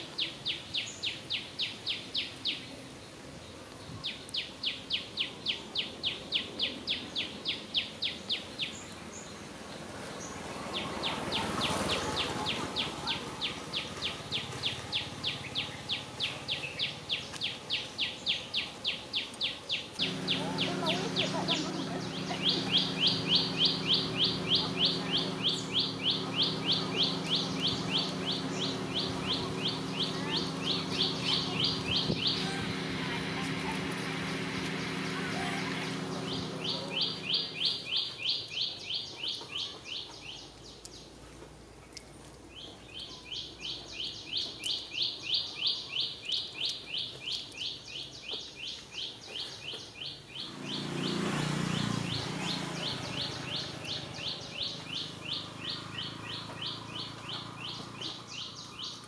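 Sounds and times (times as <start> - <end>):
steady low hum: 20.0 - 37.8
high-pitched chirping: 20.0 - 38.4.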